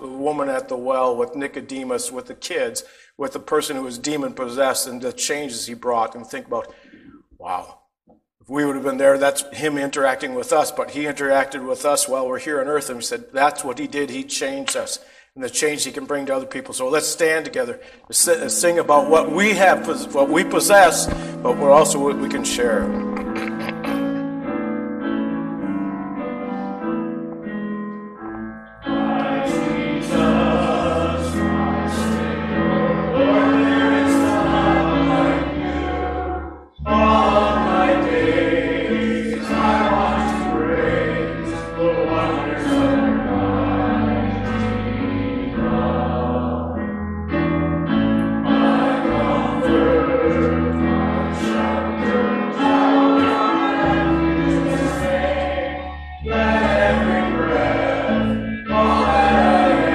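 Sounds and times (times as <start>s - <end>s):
group singing worship song: 18.3s - 24.2s, 28.8s - 46.9s, 48.2s - 59.9s
instrumental backing with bass: 19.0s - 59.9s.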